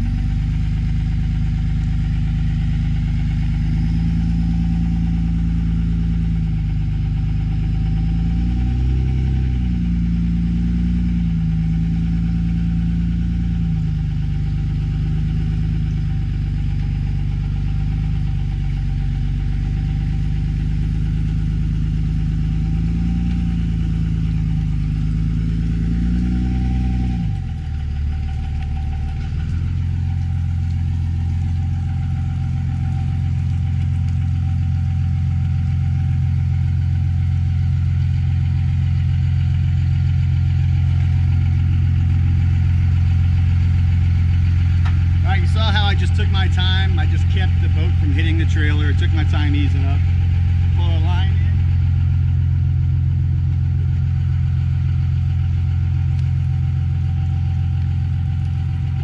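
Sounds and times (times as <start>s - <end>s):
pickup truck engine idling: 0.0s - 59.0s.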